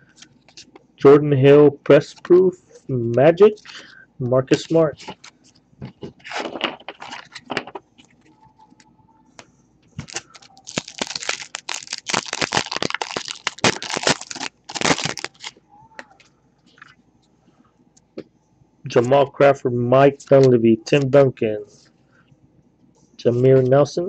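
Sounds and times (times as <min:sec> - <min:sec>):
cards rustling: 0:04.5 - 0:08.2, 0:10.0 - 0:15.6
wrapper tearing and crinkling: 0:06.2 - 0:07.5, 0:10.0 - 0:15.6.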